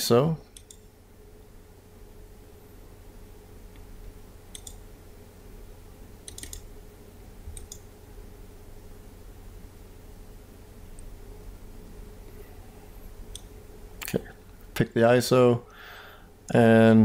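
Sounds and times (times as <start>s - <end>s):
low electrical hum: 0.0s - 17.0s
computer mouse clicks: 0.5s - 0.9s, 4.5s - 4.8s, 6.2s - 6.7s, 7.5s - 7.9s, 13.3s - 13.5s.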